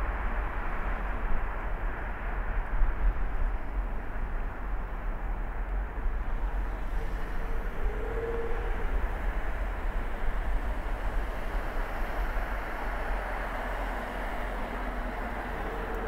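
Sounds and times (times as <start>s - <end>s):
car road noise rumble: 0.0s - 16.0s.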